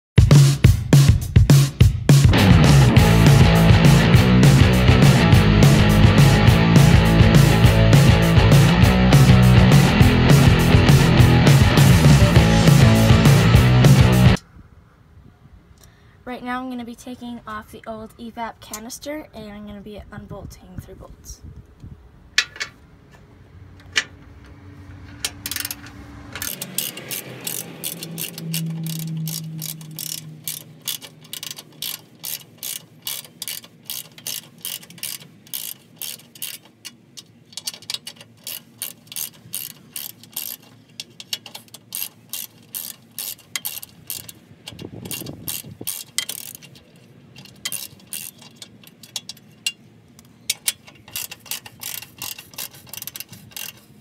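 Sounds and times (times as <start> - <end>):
ratchet wrench clicking: 25.2 - 53.9.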